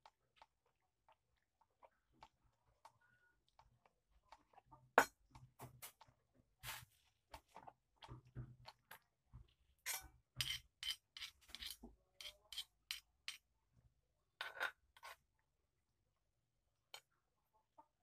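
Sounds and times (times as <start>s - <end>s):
metal spoon scraping mortar: 9.9s - 13.5s
stone pestle grinding in mortar: 10.4s - 13.4s.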